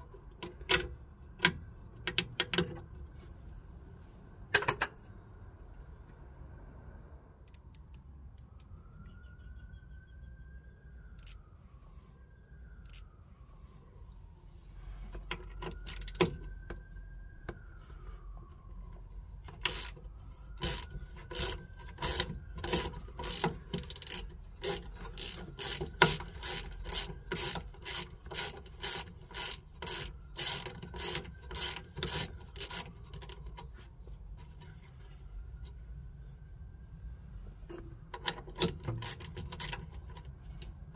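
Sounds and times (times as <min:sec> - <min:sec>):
sharp metallic clicks: 0:07.4 - 0:09.2.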